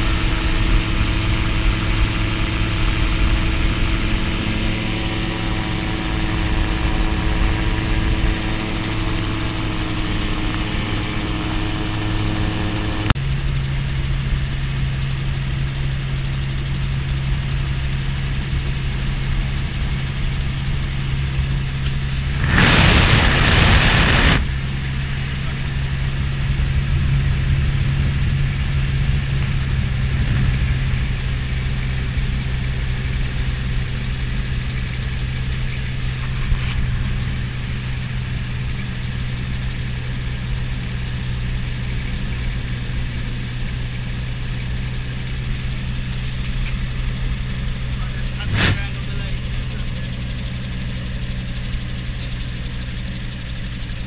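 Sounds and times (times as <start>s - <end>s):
propeller engine droning: 0.0s - 54.0s
loud rushing noise: 22.2s - 24.8s.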